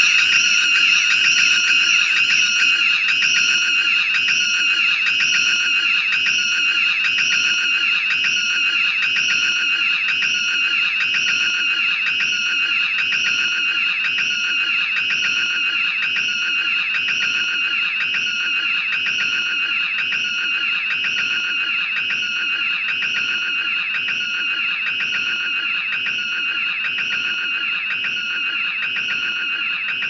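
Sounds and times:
shrill high-pitched looping sound: 0.0 - 4.8.

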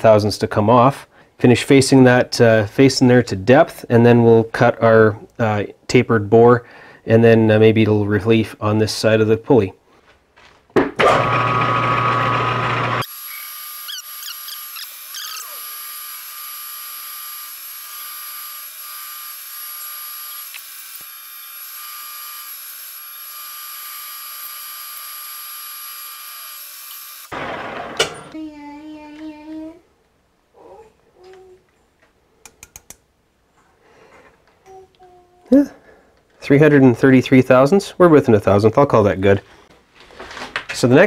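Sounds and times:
cutting tool hiss: 13.0 - 27.3.

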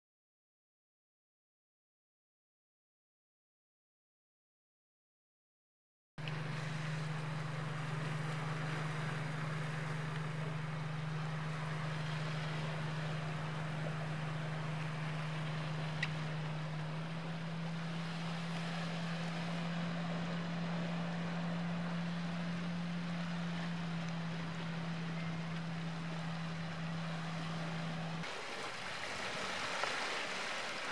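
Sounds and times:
low motor drone: 6.2 - 30.9
sea and wind wash: 6.2 - 30.9.

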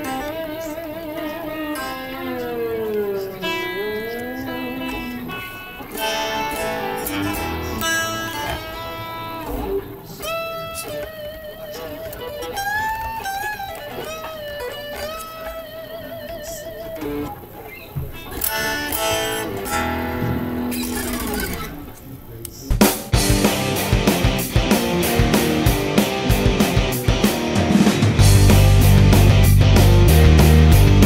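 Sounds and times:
electric guitar lead lines: 0.0 - 31.0.

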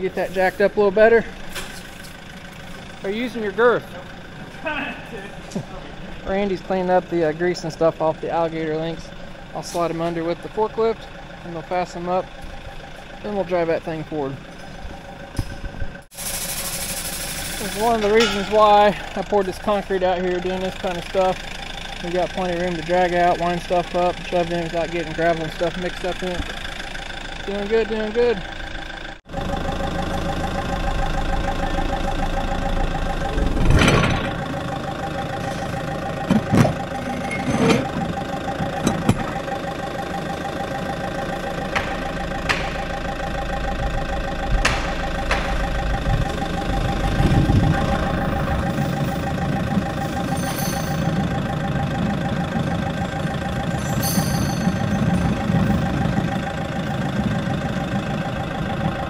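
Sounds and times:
forklift engine running with whine: 0.0 - 59.0
sharp metal knocks: 41.7 - 42.9, 44.6 - 45.8.

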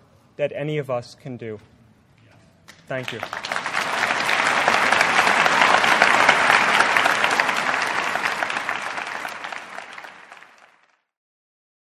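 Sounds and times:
large audience applauding: 2.9 - 11.1.

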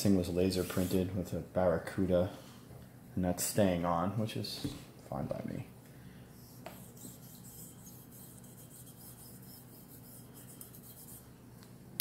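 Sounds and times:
toothbrush scrubbing metal: 6.5 - 11.3.

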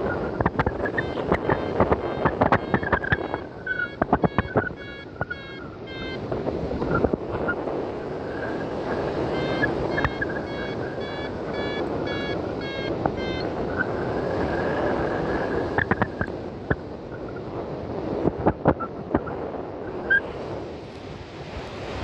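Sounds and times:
wind rushing over microphone: 0.0 - 22.0
variometer beeping: 0.4 - 7.6, 9.1 - 14.2.

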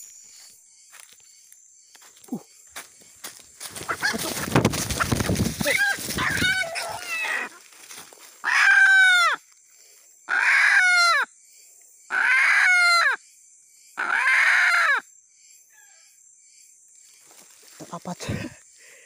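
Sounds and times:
junglefowl rooster calling: 3.8 - 7.6, 8.4 - 9.4.

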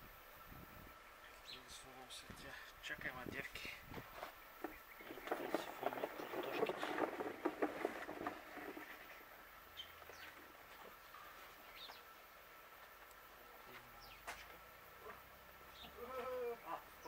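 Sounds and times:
plastic bucket scraping and clattering: 4.6 - 9.2.

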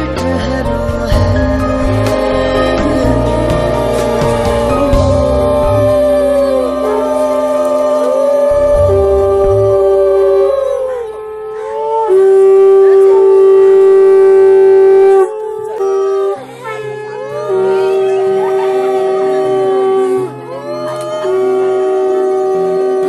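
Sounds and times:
background music: 0.0 - 23.0
conch shells blown: 0.8 - 23.0.

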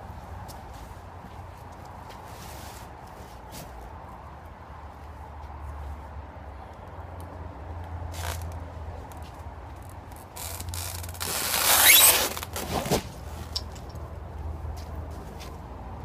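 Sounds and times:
hot tub shell scraping: 10.4 - 13.3.

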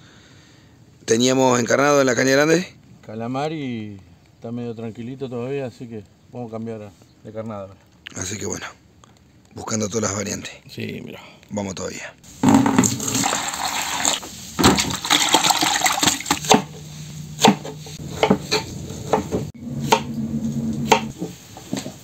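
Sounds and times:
juice dripping: 12.9 - 16.5.

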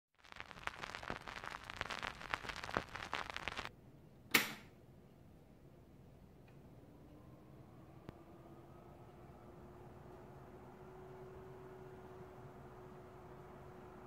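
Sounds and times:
vinyl record crackle: 0.0 - 3.7.

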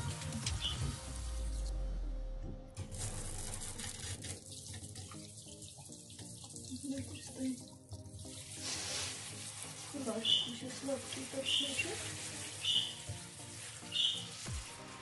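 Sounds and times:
shower water running into bathtub: 2.8 - 15.0.

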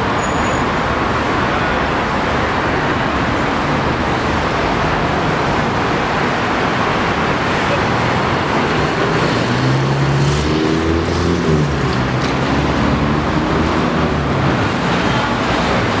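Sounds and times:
city road traffic: 0.0 - 16.0.

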